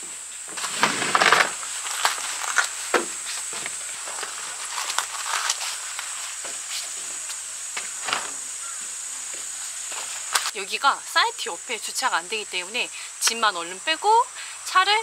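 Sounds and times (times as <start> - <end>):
footsteps on wooden deck: 0.0 - 4.8, 5.6 - 10.5
high-pitched insect drone: 0.0 - 15.0.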